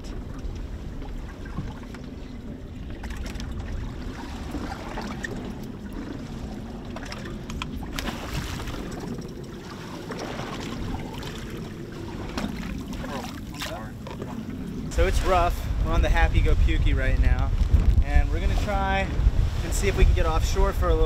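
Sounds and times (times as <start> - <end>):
boat engine idling: 0.0 - 16.1
water sloshing against hull: 0.0 - 21.0
wind on microphone: 0.0 - 21.0.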